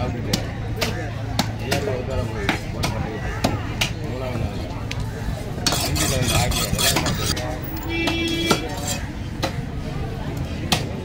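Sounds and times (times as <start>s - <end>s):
knife scraping fish: 5.6s - 7.4s, 8.3s - 9.0s.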